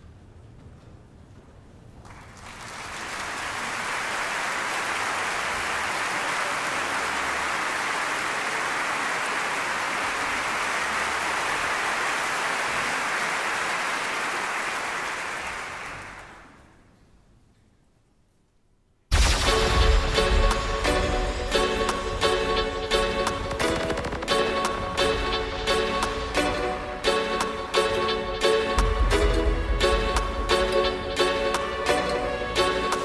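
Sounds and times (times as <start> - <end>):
large audience applauding: 2.0 - 16.8.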